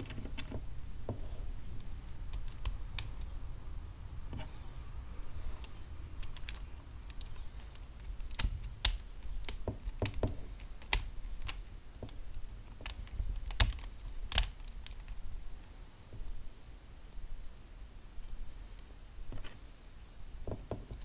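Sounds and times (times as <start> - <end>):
plastic parts clicking and snapping: 1.8 - 3.3, 5.6 - 15.2.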